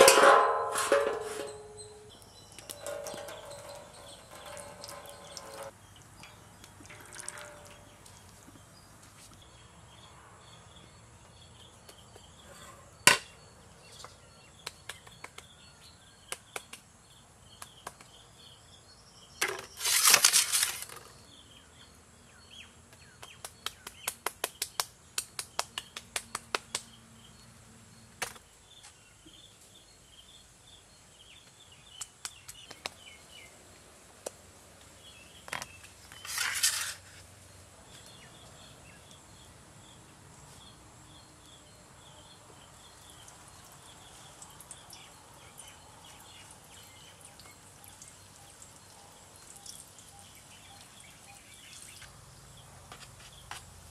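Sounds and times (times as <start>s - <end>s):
birds chirping: 1.4s - 20.0s, 37.4s - 53.6s.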